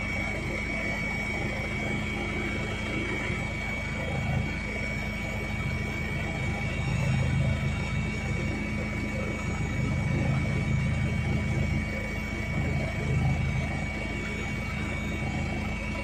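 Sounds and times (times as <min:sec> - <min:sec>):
helicopter engine and rotor drone: 0:00.0 - 0:16.0
high-pitched whine: 0:00.0 - 0:16.0.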